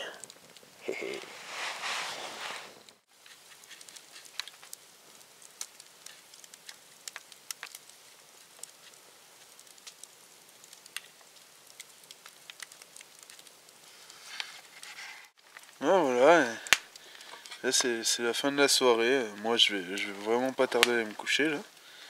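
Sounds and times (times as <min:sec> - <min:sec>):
campfire crackling and snapping: 0:00.0 - 0:22.0
faint hiss: 0:00.0 - 0:22.0.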